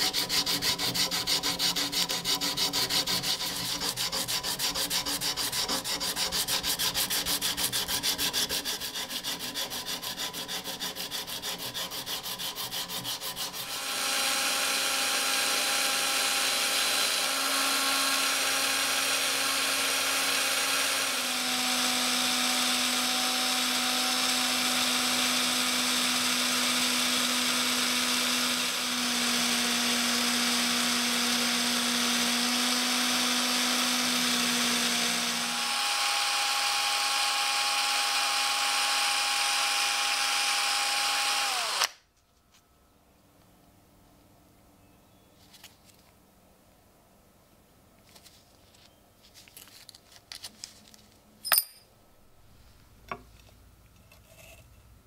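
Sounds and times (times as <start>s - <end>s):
hand sanding scraping strokes: 0.0s - 13.8s
cordless drill whine: 13.6s - 42.0s.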